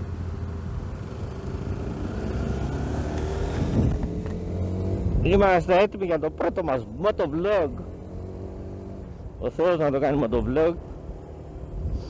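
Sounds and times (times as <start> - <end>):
motorcycle engine accelerating: 0.0 - 9.4.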